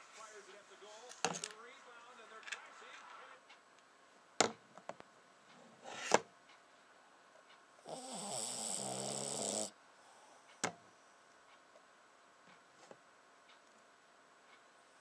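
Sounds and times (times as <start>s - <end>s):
dog snoring: 7.8s - 9.8s.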